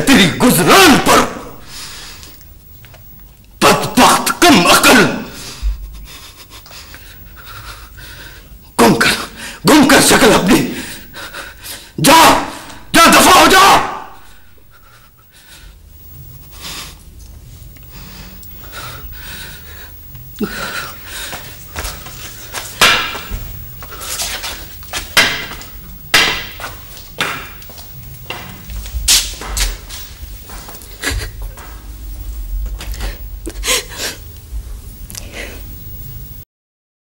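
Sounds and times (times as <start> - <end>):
low hum: 5.2 - 8.6
sharp knocks and thuds: 22.8 - 23.5, 25.2 - 27.7.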